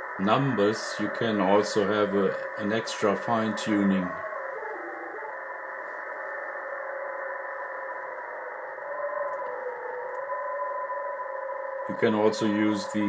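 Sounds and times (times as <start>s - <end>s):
radio band hiss: 0.0s - 5.0s, 11.9s - 13.0s
two steady data tones: 0.0s - 13.0s.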